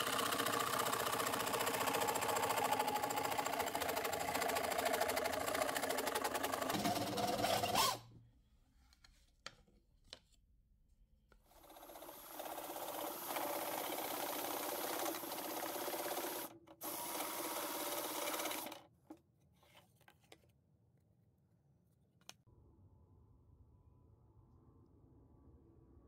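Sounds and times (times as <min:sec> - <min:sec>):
saw blade cutting board: 0:06.7 - 0:08.0.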